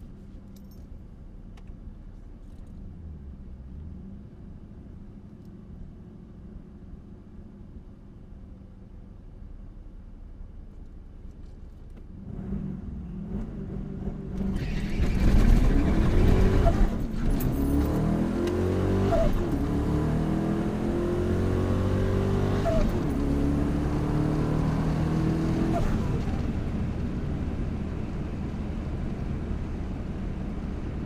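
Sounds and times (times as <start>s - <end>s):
truck engine at full throttle: 12.2s - 31.0s.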